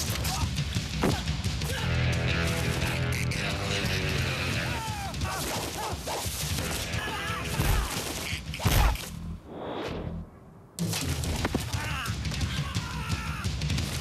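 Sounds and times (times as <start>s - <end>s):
action film soundtrack music: 0.0s - 9.5s, 10.8s - 14.0s
men shouting: 0.1s - 6.0s, 6.6s - 8.1s, 11.7s - 13.6s.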